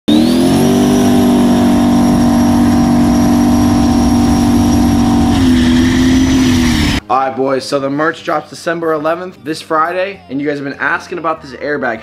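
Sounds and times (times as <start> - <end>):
boat engine running hard: 0.1 - 7.0
high turbo whistle: 0.1 - 7.0.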